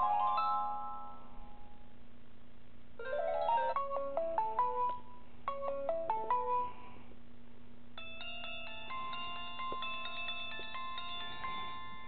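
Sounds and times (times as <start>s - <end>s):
phone ringtone melodies: 0.0s - 1.3s, 3.0s - 6.8s, 8.0s - 12.0s.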